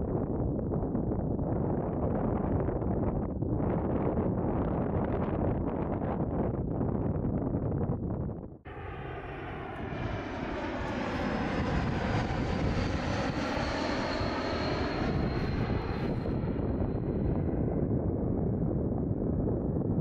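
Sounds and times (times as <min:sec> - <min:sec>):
jet airliner passing: 0:08.7 - 0:20.0.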